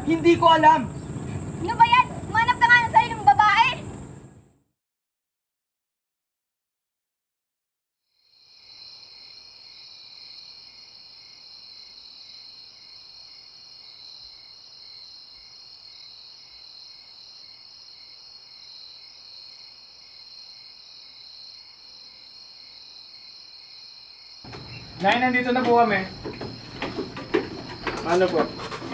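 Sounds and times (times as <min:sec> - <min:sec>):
high-pitched cricket chorus: 0:00.0 - 0:04.0, 0:08.1 - 0:28.9
faint pulsing chirp: 0:24.5 - 0:25.0.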